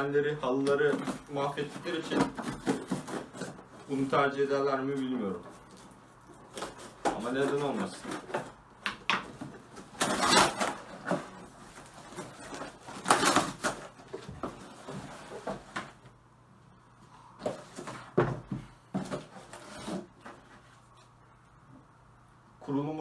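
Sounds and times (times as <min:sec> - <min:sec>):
cardboard tearing and rustling: 0:00.7 - 0:04.4, 0:05.3 - 0:08.6, 0:09.4 - 0:16.0, 0:19.0 - 0:20.5.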